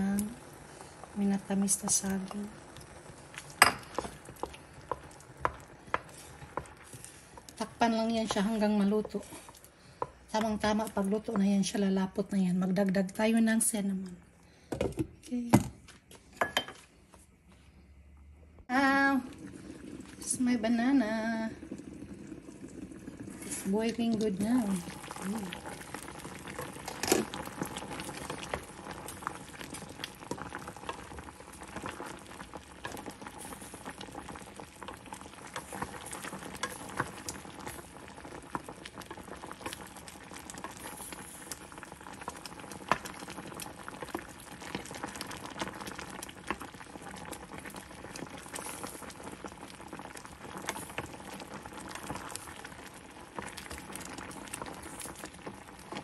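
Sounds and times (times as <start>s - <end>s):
syrup boiling and bubbling: 0.0s - 12.8s, 18.7s - 56.0s
wooden spoon stirring and knocking: 3.4s - 11.6s.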